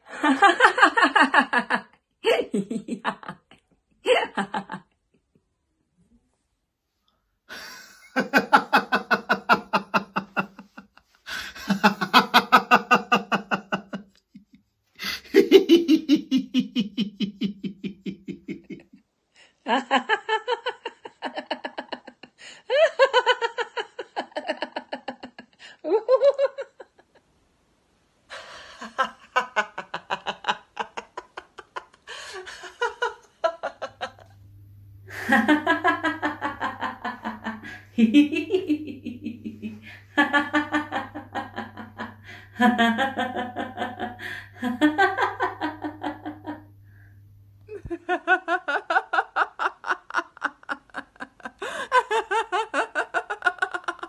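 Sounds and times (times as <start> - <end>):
women laughing: 0.0 - 4.9, 7.5 - 19.0, 19.6 - 27.1, 28.3 - 34.4, 35.1 - 46.8, 47.7 - 54.0
low hum: 32.1 - 49.3.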